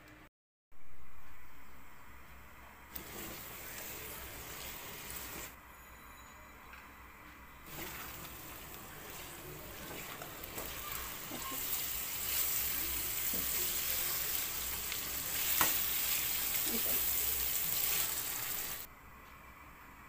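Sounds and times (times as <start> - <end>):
food sizzling in a pan: 3.0 - 5.6, 7.7 - 18.9
spatula stirring and scraping: 7.7 - 18.9.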